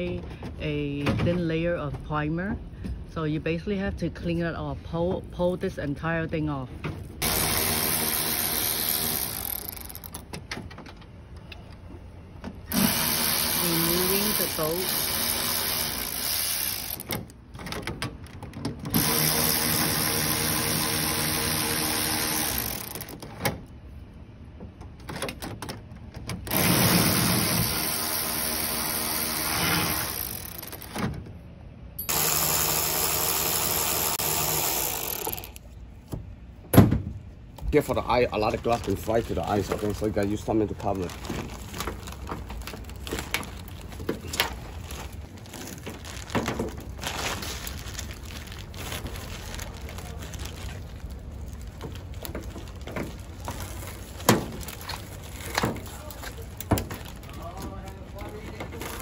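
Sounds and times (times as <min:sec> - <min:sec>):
cordless electric ratchet running: 0:07.2 - 0:10.1, 0:12.7 - 0:17.1, 0:18.9 - 0:23.1, 0:26.5 - 0:30.9, 0:32.0 - 0:35.7
power driver motor whirring: 0:32.1 - 0:35.6.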